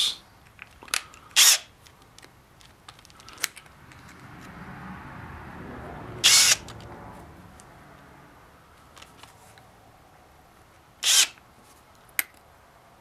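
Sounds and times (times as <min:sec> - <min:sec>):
drill chuck clicking: 0:11.0 - 0:11.4.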